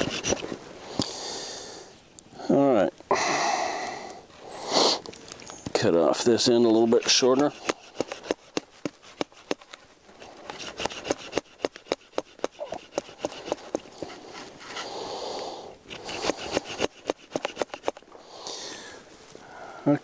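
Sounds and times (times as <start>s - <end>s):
hand saw rasping through wood: 0.0s - 0.5s, 6.5s - 14.9s, 15.9s - 18.0s.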